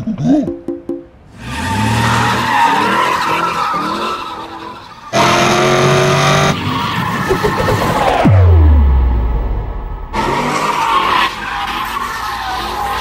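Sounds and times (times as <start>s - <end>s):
tyres skidding and squealing: 1.3s - 8.7s, 10.0s - 13.0s.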